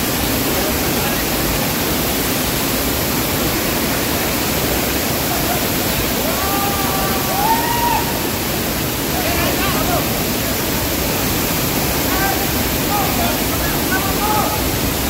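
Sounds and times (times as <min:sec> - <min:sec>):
waterfall rushing: 0:00.0 - 0:15.0
faint voice calling out: 0:06.2 - 0:08.1.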